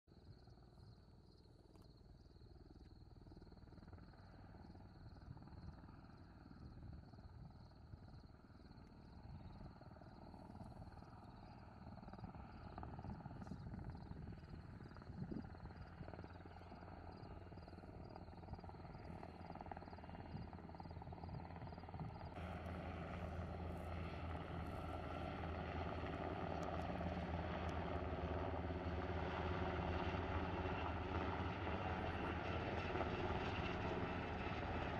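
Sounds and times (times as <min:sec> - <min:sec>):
helicopter rotor and turbine: 0:00.1 - 0:34.9
insect chirping: 0:00.2 - 0:12.8, 0:13.8 - 0:22.4.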